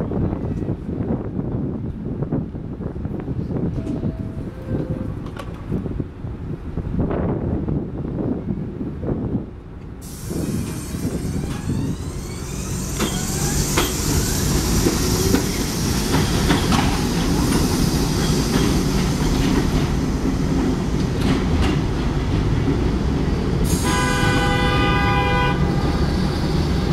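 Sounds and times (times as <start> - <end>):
subway train rumbling: 0.0 - 26.9
wheels clacking over rail joints: 12.4 - 23.4
train horn blast: 23.7 - 26.2.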